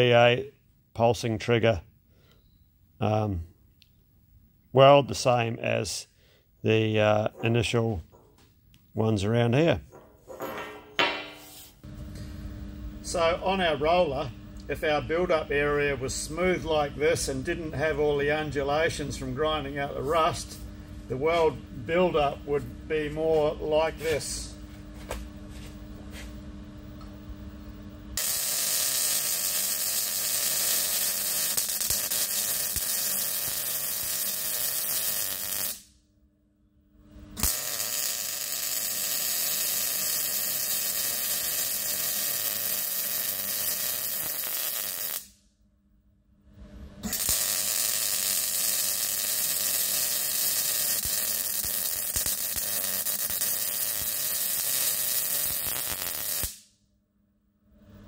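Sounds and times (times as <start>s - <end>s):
welding arc crackling and hissing: 13.0s - 22.4s, 28.2s - 35.9s, 37.4s - 45.4s, 47.0s - 56.7s.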